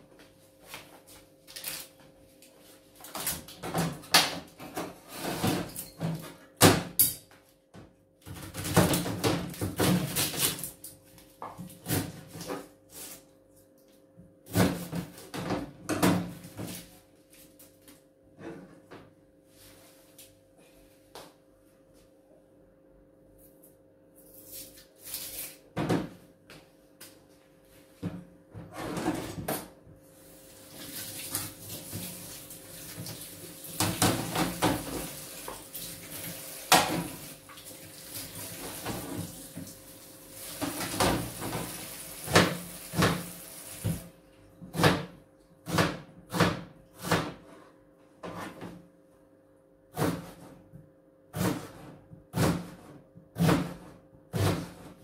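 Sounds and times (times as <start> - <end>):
knife chopping on plastic board: 44.7 - 47.6, 51.3 - 54.9.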